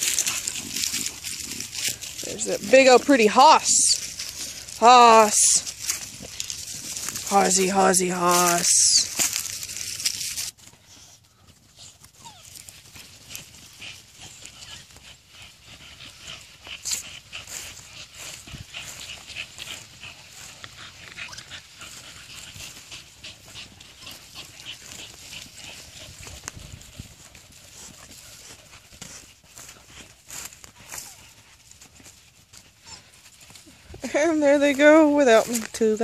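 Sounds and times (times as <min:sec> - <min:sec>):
dog panting: 0:00.0 - 0:36.0
footsteps in dry leaves: 0:00.0 - 0:36.0.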